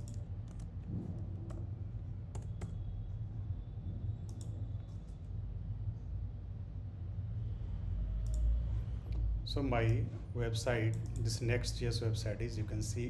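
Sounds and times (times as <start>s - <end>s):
computer keyboard clicks: 0.0s - 0.8s, 2.3s - 2.8s, 4.3s - 4.6s
steady low hum: 0.0s - 13.0s.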